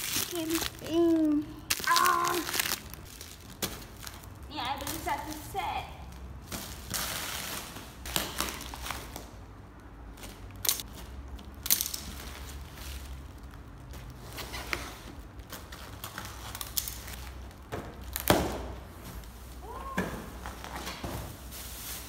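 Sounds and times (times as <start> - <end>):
plastic wrap crinkling: 0.0 - 9.3, 10.2 - 18.3.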